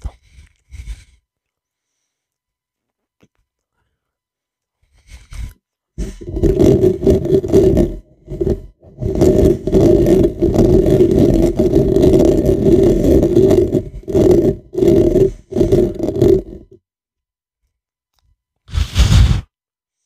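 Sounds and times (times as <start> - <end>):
fingers scratching a microphone: 5.0 - 16.8, 18.7 - 19.5.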